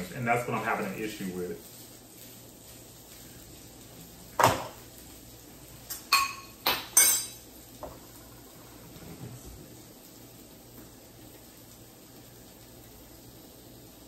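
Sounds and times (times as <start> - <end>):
glass bowl and dishes clinking: 5.9 - 7.4.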